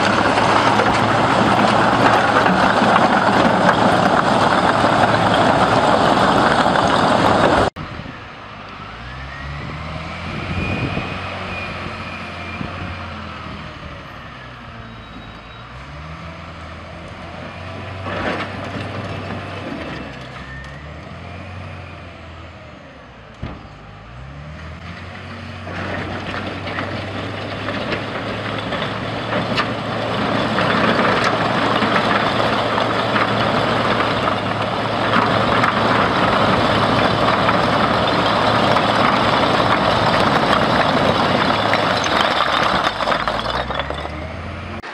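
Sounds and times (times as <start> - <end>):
concrete blocks scraping and clattering: 0.0 - 7.7, 17.9 - 20.6, 25.6 - 44.9
diesel engine revving: 0.0 - 15.0, 15.6 - 44.9.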